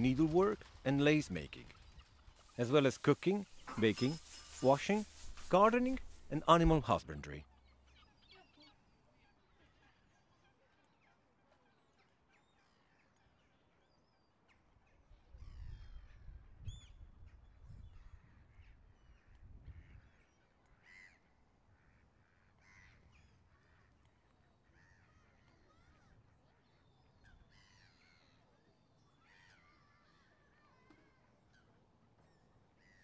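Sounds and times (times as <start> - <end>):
bird calls: 0.0 - 10.4.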